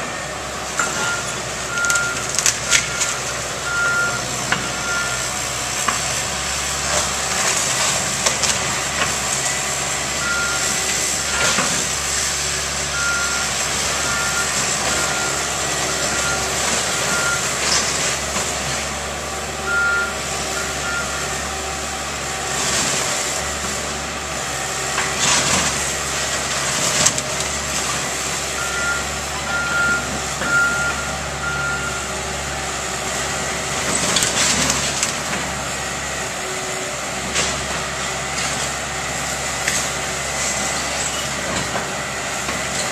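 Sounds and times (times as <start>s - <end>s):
excavator engine running: 0.0s - 42.9s
backup alarm beeps: 0.9s - 5.3s, 10.2s - 11.6s, 12.9s - 17.6s, 19.7s - 21.2s, 28.6s - 32.1s.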